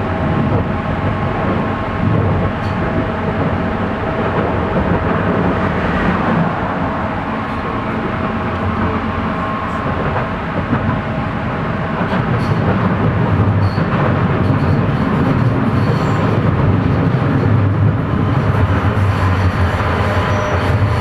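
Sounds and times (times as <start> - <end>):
metro wheels rumbling on rails: 0.0 - 21.0.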